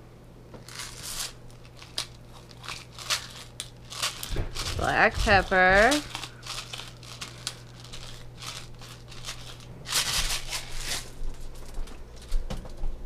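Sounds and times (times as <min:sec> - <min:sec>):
pepper mill grinding: 0:00.6 - 0:11.1.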